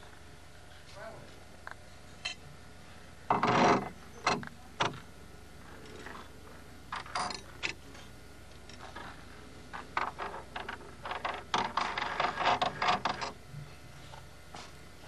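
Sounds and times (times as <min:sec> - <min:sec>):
sharp clicks and knocks: 0:03.3 - 0:05.1, 0:09.7 - 0:13.4.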